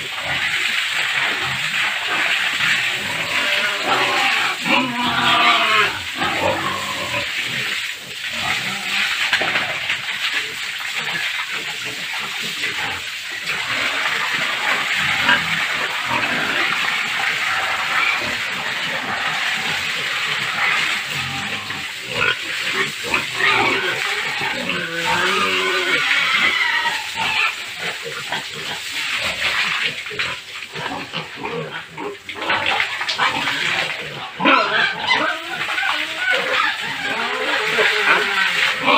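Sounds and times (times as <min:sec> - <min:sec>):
pigs grunting and squealing: 0:00.0 - 0:38.9.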